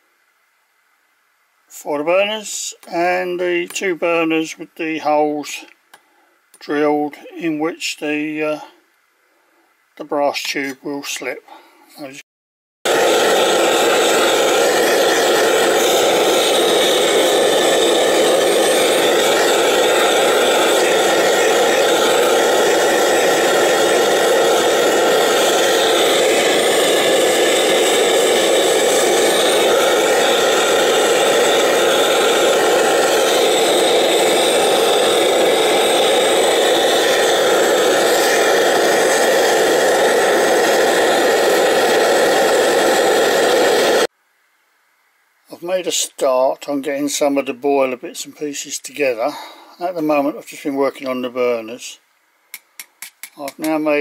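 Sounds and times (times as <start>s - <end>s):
blowtorch flame rushing: 12.9s - 44.1s.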